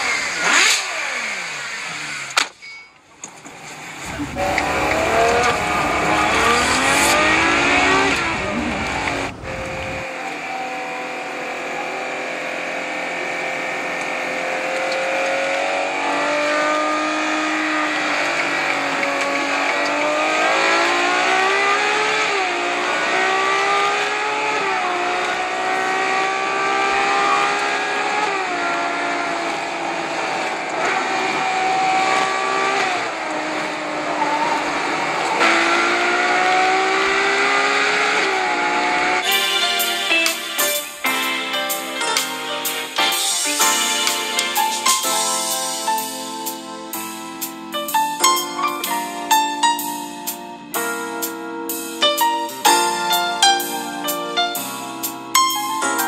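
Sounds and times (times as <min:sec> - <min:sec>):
sports car engine revving: 0:00.0 - 0:02.4, 0:03.6 - 0:42.2
deep low rumble: 0:04.0 - 0:10.0.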